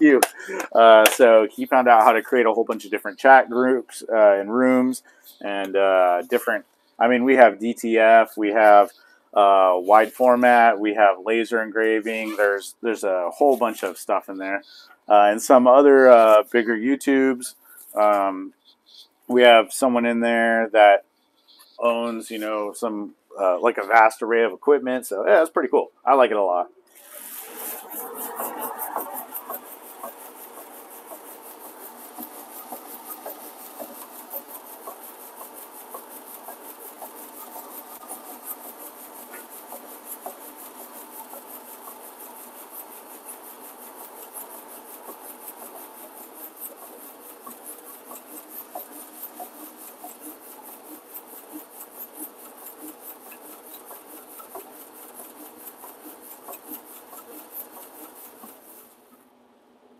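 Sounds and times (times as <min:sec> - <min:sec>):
printing machinery running: 0:27.0 - 0:59.1
fast even ticking: 0:27.3 - 0:59.0.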